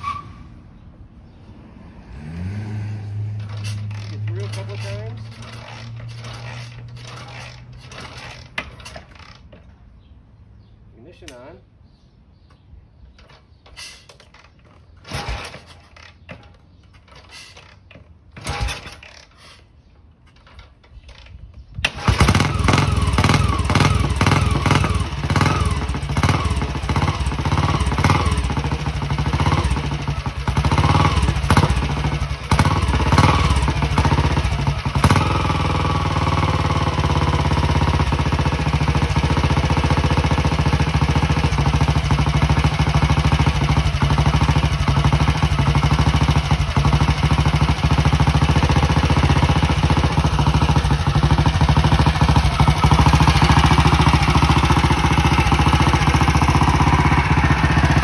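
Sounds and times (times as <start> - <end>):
motorcycle engine revving: 1.5 - 9.7, 14.2 - 19.4, 20.4 - 58.0
motorcycle kick start knocks: 3.4 - 9.8, 12.4 - 35.8.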